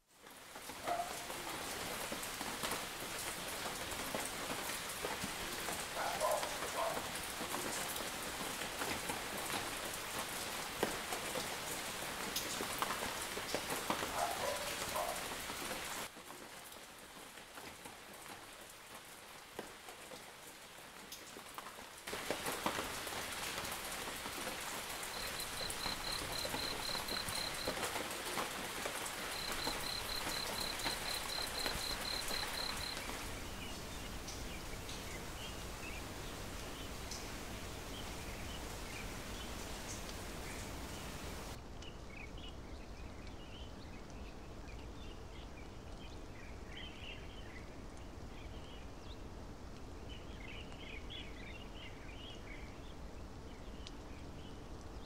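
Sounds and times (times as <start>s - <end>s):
rain on foliage and paving: 0.0s - 55.0s
raindrops ticking: 0.2s - 35.7s.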